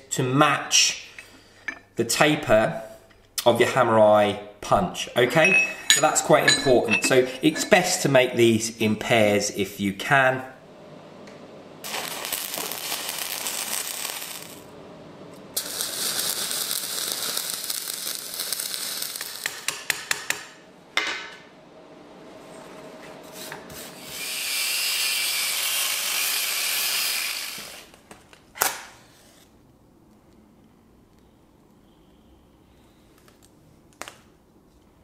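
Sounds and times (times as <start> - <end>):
welding arc crackling and hissing: 11.8 - 14.7, 15.5 - 19.8, 24.1 - 27.9.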